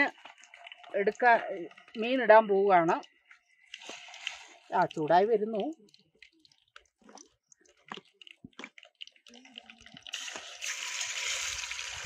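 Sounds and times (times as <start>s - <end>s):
fish sizzling in a pan: 10.1s - 12.0s.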